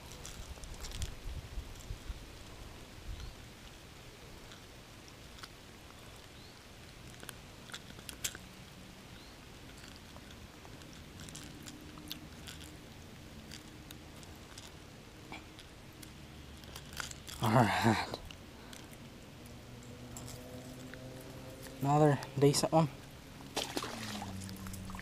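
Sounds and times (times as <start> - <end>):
fishing lure hooks rattling: 9.7 - 14.8, 15.4 - 19.0, 20.1 - 22.6.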